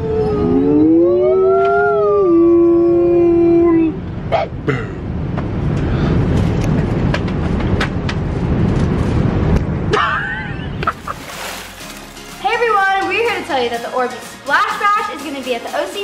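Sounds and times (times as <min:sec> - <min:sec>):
people howling calls: 0:00.0 - 0:04.0.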